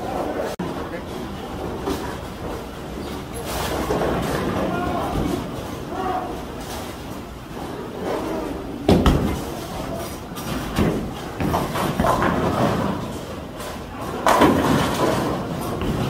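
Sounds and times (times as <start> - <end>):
bowling hall din: 0.0 - 16.0
bowling pins crashing: 8.7 - 16.0
bowling balls knocking: 8.8 - 16.0.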